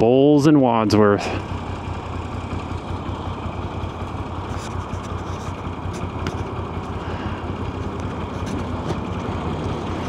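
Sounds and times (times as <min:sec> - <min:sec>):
motorcycle engine at low revs: 0:00.0 - 0:10.0
road noise: 0:00.0 - 0:10.0.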